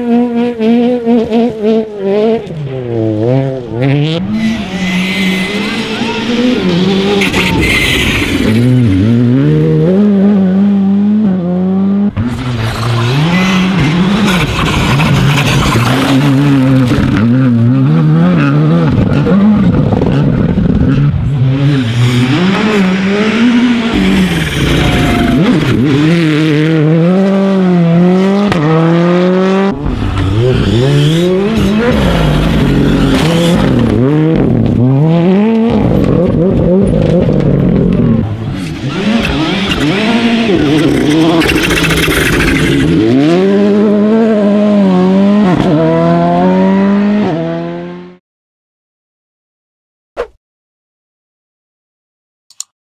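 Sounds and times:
rally car engines revving: 0.0 - 48.2.

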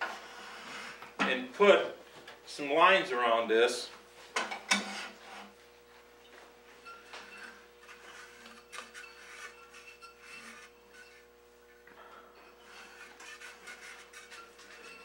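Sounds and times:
chalk scratching on turning wood: 0.0 - 1.0, 4.8 - 5.6, 7.8 - 11.2, 12.5 - 15.0
faint lathe hum: 0.0 - 15.0.

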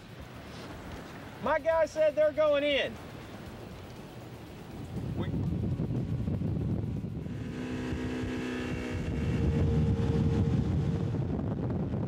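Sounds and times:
outboard motor running: 0.0 - 12.0
wind rumbling on microphone: 2.9 - 12.0.

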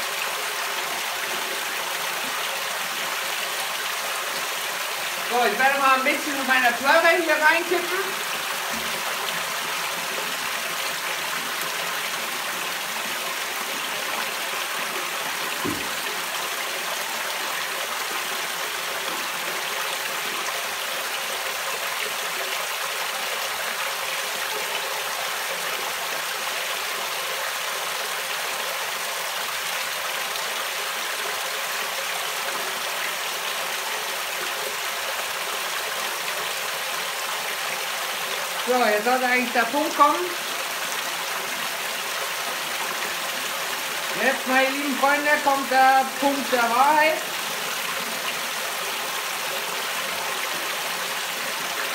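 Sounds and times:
soft knock: 15.6 - 16.0.

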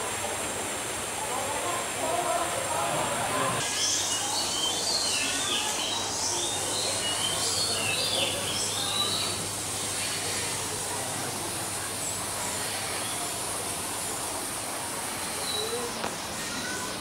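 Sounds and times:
background hiss: 0.0 - 17.0.

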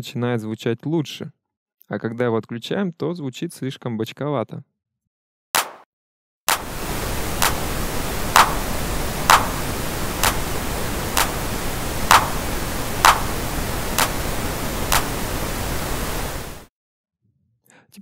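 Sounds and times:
sharp electronic percussion hits: 5.6 - 5.8, 6.5 - 6.8, 8.3 - 10.5, 12.0 - 13.4
pink noise: 6.5 - 16.7.

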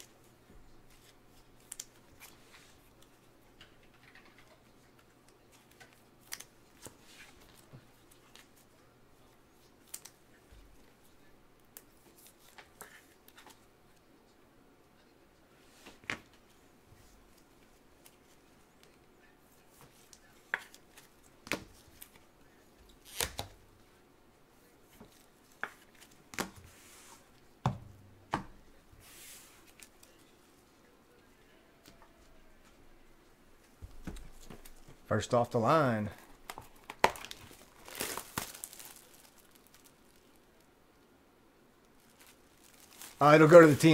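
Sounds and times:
soft brushing rustle: 24.6 - 27.4, 28.7 - 30.7, 42.0 - 43.9.

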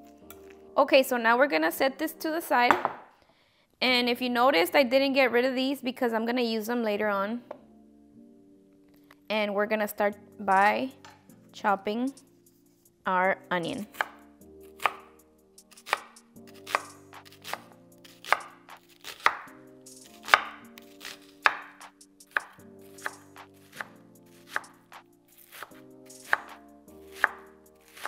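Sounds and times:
knife chopping onion on board: 15.7 - 19.5, 20.1 - 24.8, 25.4 - 28.0.

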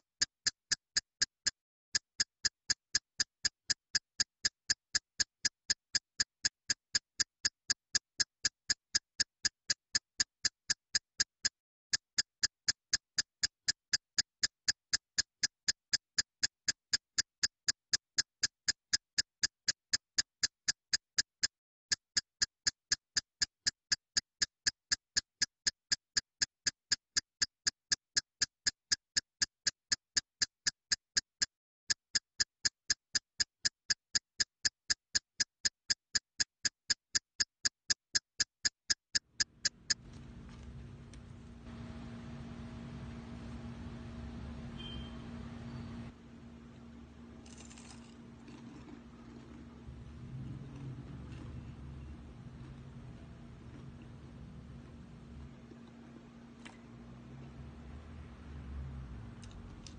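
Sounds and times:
steady sharp ticking: 2.2 - 21.5, 22.1 - 46.2.

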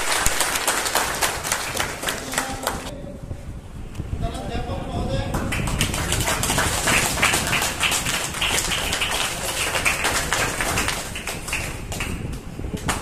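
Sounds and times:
audience applauding: 0.0 - 2.9, 5.4 - 12.2.

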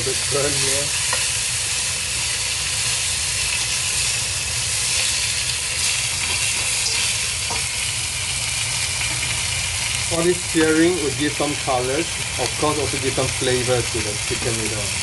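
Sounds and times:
chicken sizzling in hot oil: 0.0 - 15.0
spatula scraping and knocking wok: 4.8 - 7.7.

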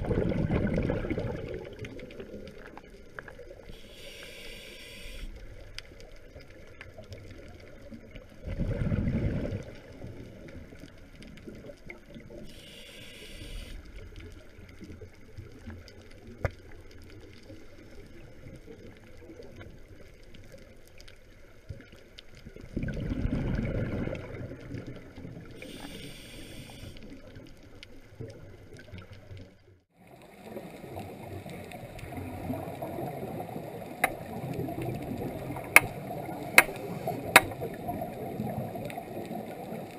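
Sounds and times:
regulator bubbles gurgling: 0.0 - 3.8, 6.9 - 12.5, 22.4 - 25.7, 30.0 - 39.9
low underwater rush: 0.0 - 4.4, 5.4 - 12.8, 13.8 - 39.9
short hissing: 3.8 - 5.3, 12.5 - 13.8, 25.6 - 27.0
sharp clicks: 35.6 - 36.0, 36.6 - 37.6.

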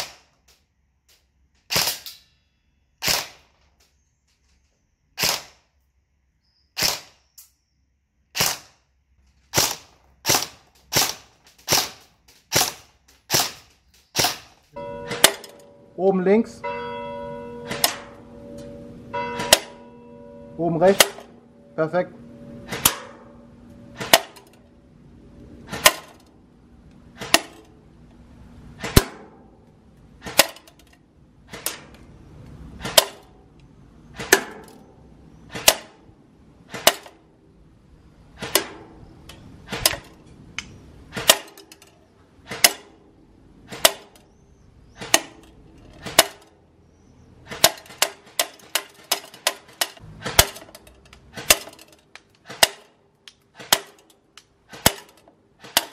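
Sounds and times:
airsoft gun firing single shots: 0.0 - 0.3, 1.7 - 2.1, 3.0 - 3.5, 5.2 - 5.7, 6.8 - 7.2, 8.3 - 8.8, 9.5 - 14.5, 35.5 - 36.0, 36.7 - 37.2, 41.1 - 41.6, 42.5 - 43.0, 52.4 - 54.0, 54.7 - 55.9.

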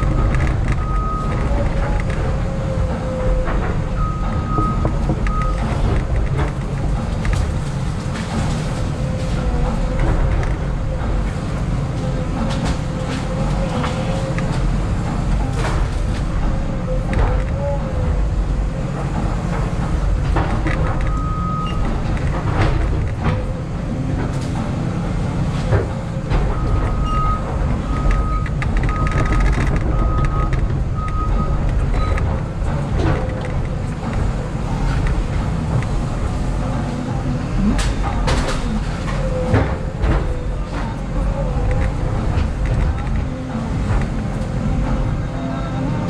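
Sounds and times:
wood cracking: 0.0 - 45.0
excavator diesel engine: 0.0 - 46.0.

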